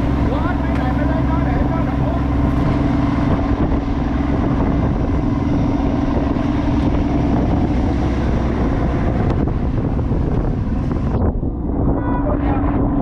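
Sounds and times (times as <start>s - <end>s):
boat engine humming: 0.0s - 13.0s
wind noise on microphone: 0.0s - 13.0s.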